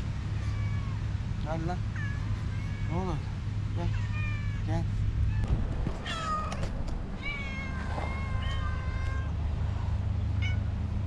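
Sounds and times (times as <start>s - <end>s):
cats meowing: 0.3s - 1.1s, 1.8s - 3.3s, 3.9s - 9.5s, 10.4s - 10.7s.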